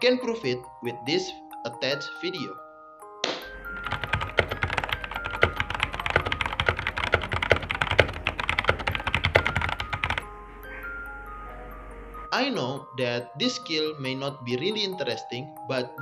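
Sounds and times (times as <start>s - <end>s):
faint background music: 0.0s - 16.0s
mechanical keyboard typing: 3.8s - 10.2s.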